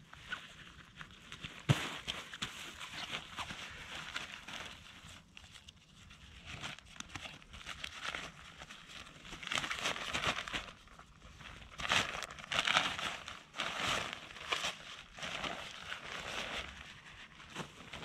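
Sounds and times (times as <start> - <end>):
fabric sack rustling: 7.7 - 18.0.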